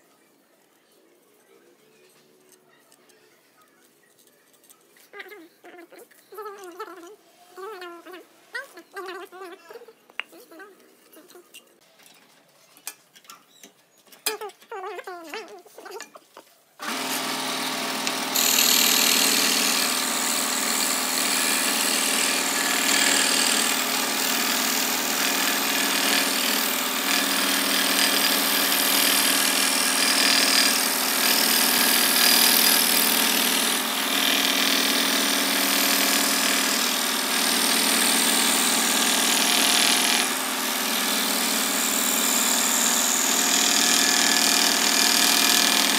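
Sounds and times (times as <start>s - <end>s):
scroll saw cutting wood: 16.8s - 45.9s.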